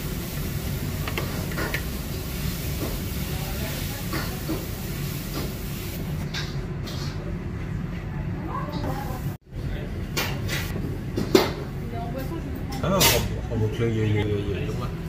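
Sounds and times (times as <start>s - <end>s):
noodles sizzling in a wok: 0.0s - 6.2s
gas burner rumble: 0.0s - 13.6s.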